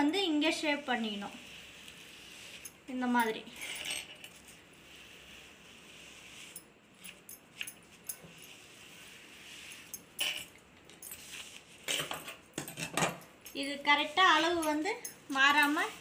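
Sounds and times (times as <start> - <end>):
chalk scratching fabric: 0.6 - 2.8, 4.5 - 7.2, 8.2 - 10.0, 15.5 - 16.0.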